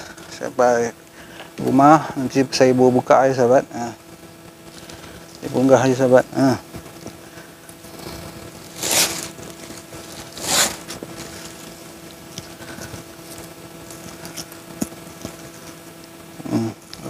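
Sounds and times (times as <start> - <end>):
steady low hum: 0.0 - 17.0
wet net rustling and scraping: 8.0 - 11.9
net swishing: 8.7 - 9.4, 10.2 - 11.5.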